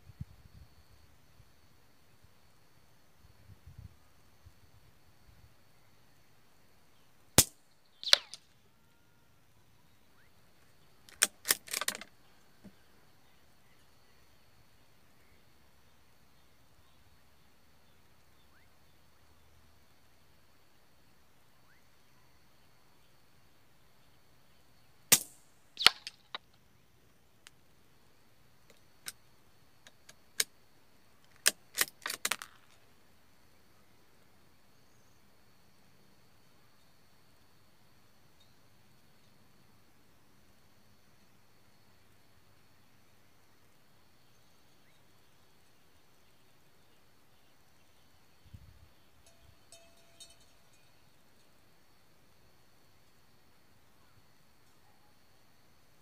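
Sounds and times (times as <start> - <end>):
rifle shot crack: 7.4 - 8.4, 25.1 - 26.2
rifle action clicking: 11.1 - 12.1
rifle bolt metallic clacks: 11.1 - 12.1, 31.5 - 32.6.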